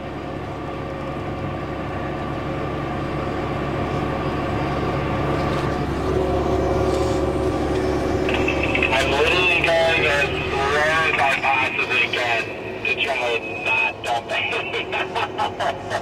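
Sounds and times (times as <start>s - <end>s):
combine harvester engine drone: 0.0s - 16.0s
steady tone: 6.0s - 15.5s.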